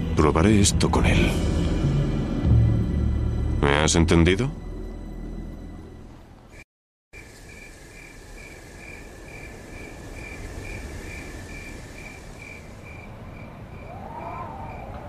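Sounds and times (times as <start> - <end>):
low hiss: 7.2 - 14.6
crickets chirping: 7.2 - 15.0.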